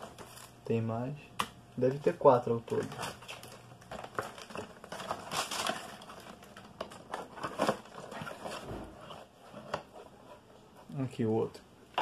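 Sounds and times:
plastic packaging crinkling: 1.8 - 9.1.

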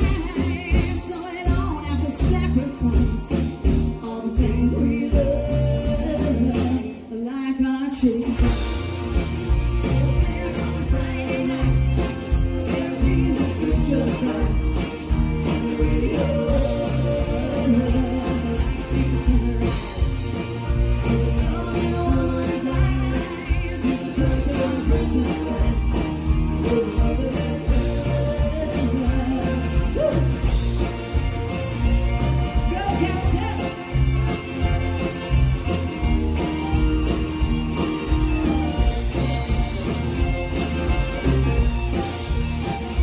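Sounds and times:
person singing: 0.0 - 35.8
country band playing live: 0.0 - 43.0.

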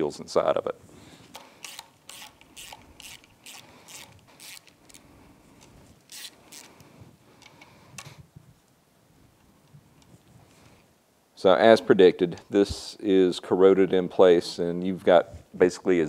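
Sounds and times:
socket ratchet clicking: 1.3 - 5.0, 6.1 - 6.8.

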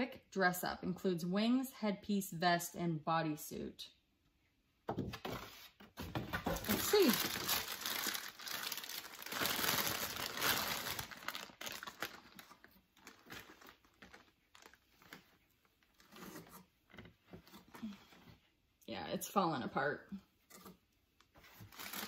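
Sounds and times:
plastic bag crinkling: 6.5 - 16.2, 21.5 - 22.0.

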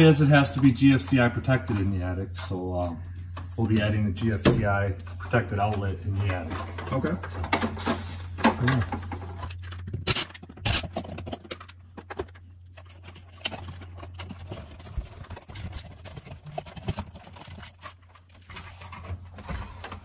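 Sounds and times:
clicks and plastic rattling: 5.2 - 19.2.

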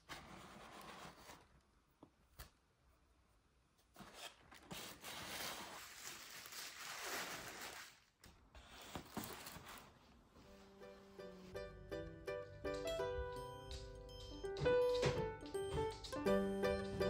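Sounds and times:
paper rustling and crinkling: 0.0 - 1.7, 3.9 - 10.8.

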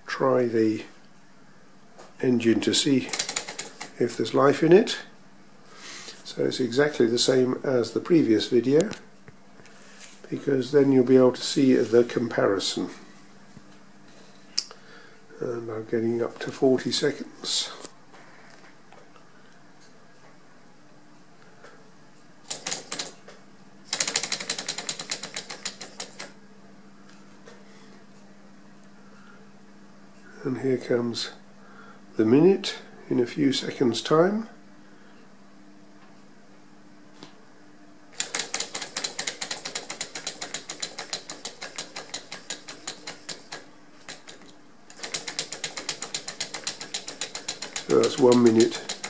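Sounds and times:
small engine pistons clicking: 23.9 - 26.3, 38.2 - 49.0.

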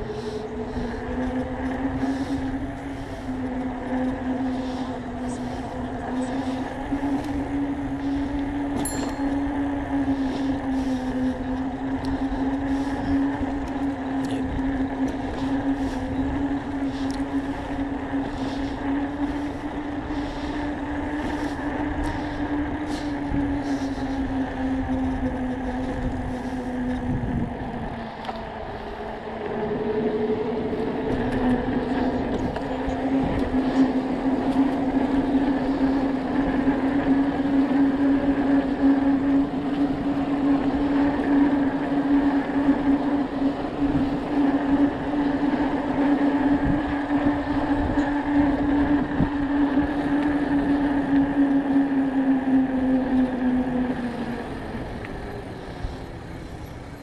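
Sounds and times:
electric bike drive whine: 0.0 - 57.0.

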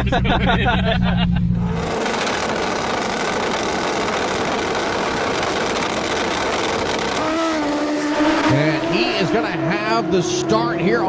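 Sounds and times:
motorcycle engines idling roughly: 2.0 - 7.5.

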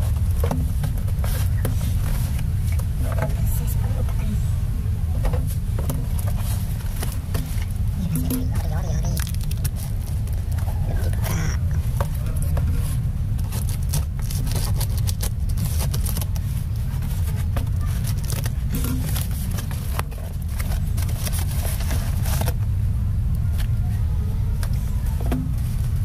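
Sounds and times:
low rumble: 0.0 - 26.0
plastic wrap crinkling and tearing: 8.0 - 11.5, 13.4 - 22.6
packing tape tearing: 9.1 - 11.4, 13.4 - 16.5.

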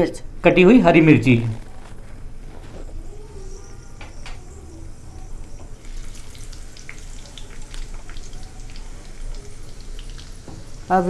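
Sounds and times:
crackles and pops of frying: 1.5 - 11.0
seeds frying in hot oil: 2.3 - 11.0.

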